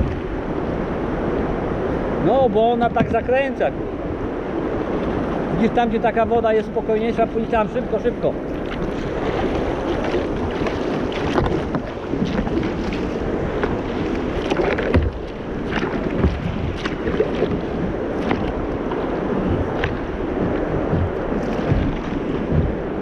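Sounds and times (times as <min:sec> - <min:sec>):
moving water: 0:00.0 - 0:23.0
wind on microphone: 0:00.0 - 0:23.0
paddle splashes and drips: 0:08.4 - 0:23.0.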